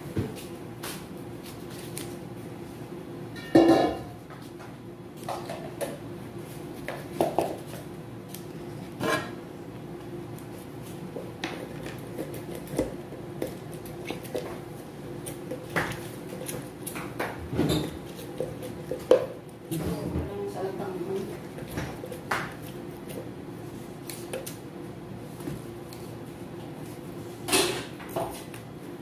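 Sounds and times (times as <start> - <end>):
dishes and utensils clinking: 3.3 - 4.2, 27.5 - 28.0.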